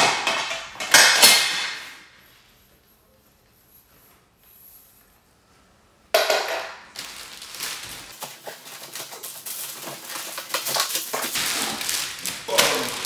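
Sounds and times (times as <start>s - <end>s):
plastic wrapping crinkling: 6.9s - 13.0s.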